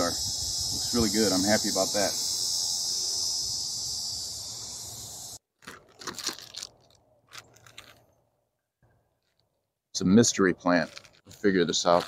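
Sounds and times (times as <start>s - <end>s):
high-pitched insect chorus: 0.0s - 5.4s
plastic bag crinkling: 5.6s - 8.1s, 10.7s - 12.0s.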